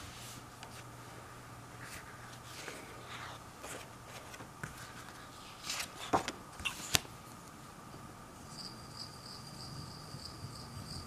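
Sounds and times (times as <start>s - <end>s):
paper rustling and scraping: 1.8s - 7.1s.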